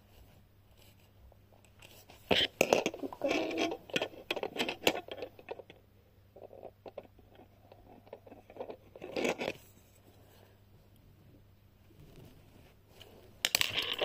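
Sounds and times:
plastic pieces clicking: 0:02.3 - 0:05.8, 0:13.4 - 0:14.0.

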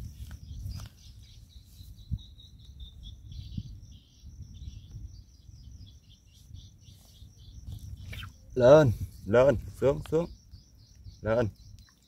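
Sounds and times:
insects trilling: 0:00.0 - 0:12.0
wind rumble on microphone: 0:00.0 - 0:12.0.

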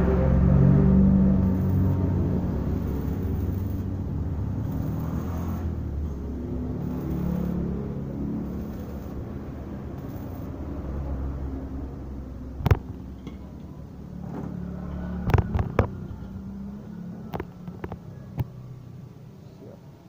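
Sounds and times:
welding machine humming: 0:00.9 - 0:11.4.

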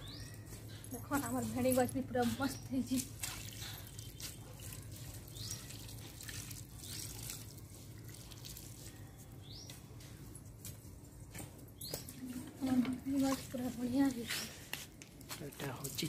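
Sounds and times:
bird chirps: 0:00.0 - 0:00.8
water splashing and trickling: 0:00.4 - 0:16.0.

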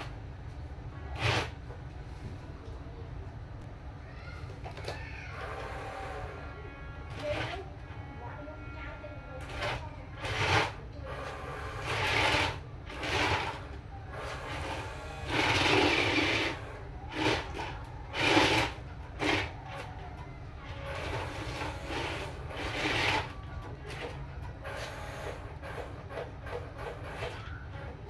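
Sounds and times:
toy truck motor whirring: 0:01.1 - 0:01.6, 0:05.3 - 0:07.9, 0:08.8 - 0:20.0, 0:20.6 - 0:27.6.

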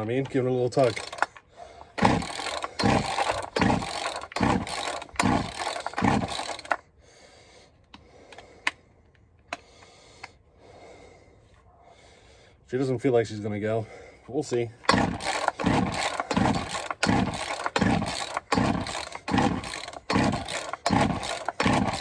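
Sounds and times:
chainsaw starter rope pulls: 0:00.0 - 0:06.8, 0:14.8 - 0:22.0.

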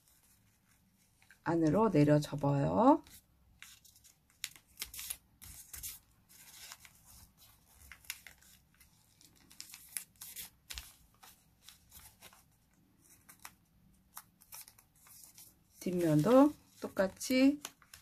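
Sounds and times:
paper rustling and crinkling: 0:00.0 - 0:01.8, 0:03.0 - 0:18.0.

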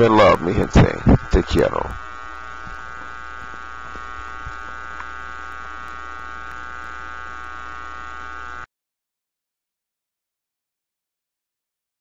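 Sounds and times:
electrical hum and buzz: 0:00.0 - 0:08.7.

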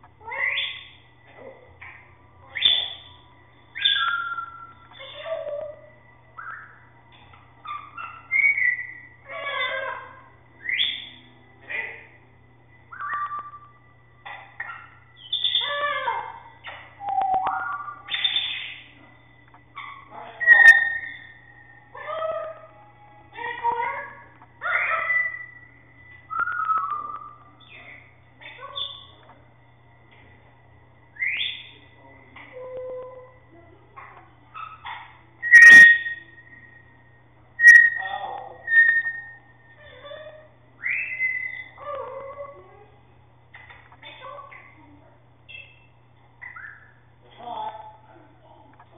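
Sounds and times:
bird squawk: 0:00.2 - 0:01.0, 0:01.8 - 0:06.9, 0:07.6 - 0:12.2, 0:12.9 - 0:19.0, 0:19.7 - 0:22.8, 0:23.4 - 0:29.2, 0:31.2 - 0:37.0, 0:37.6 - 0:42.7, 0:45.5 - 0:47.1
birds whistling: 0:00.2 - 0:01.1, 0:01.8 - 0:12.2, 0:12.8 - 0:29.2, 0:31.1 - 0:33.4, 0:34.5 - 0:42.5, 0:45.5 - 0:47.1.

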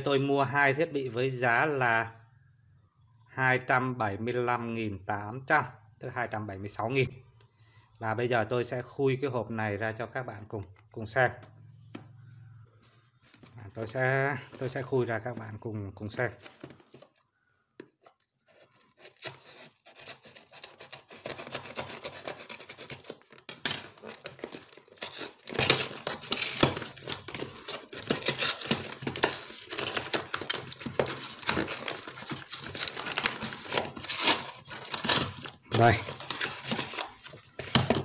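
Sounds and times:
cardboard being cut and torn: 0:18.5 - 0:37.8.

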